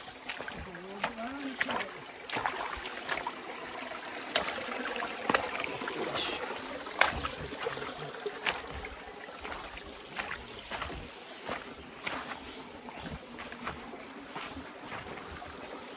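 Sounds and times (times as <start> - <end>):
footsteps crunching dry leaves: 8.4 - 15.6.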